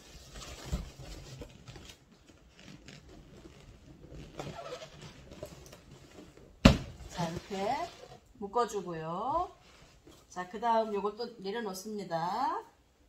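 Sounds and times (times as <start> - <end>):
balloons squeaking: 1.4 - 5.8, 6.6 - 8.3.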